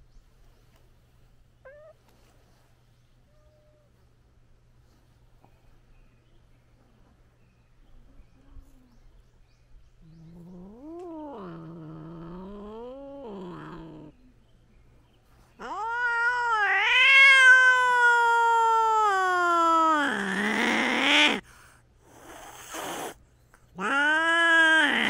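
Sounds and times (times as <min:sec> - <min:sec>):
cats yowling: 0:01.6 - 0:02.0, 0:03.3 - 0:04.0, 0:15.6 - 0:21.4, 0:23.8 - 0:25.0.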